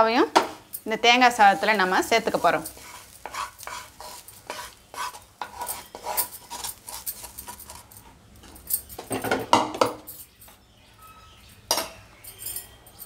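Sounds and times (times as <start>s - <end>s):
wooden spatula scraping a pan: 1.0s - 8.1s
clinks on a plate: 11.7s - 13.0s.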